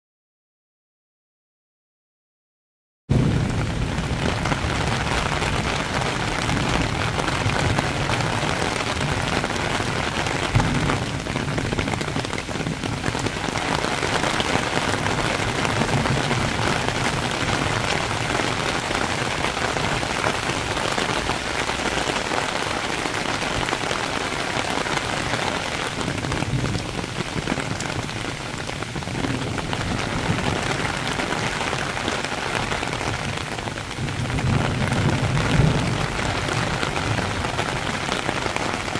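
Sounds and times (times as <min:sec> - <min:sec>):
heavy rain on leaves and pavement: 0:03.1 - 0:38.9.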